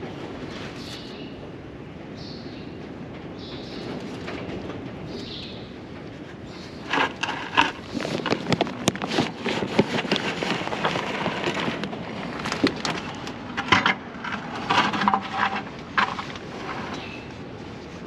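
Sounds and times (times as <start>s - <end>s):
plastic buckets knocking and scraping: 6.1s - 17.3s.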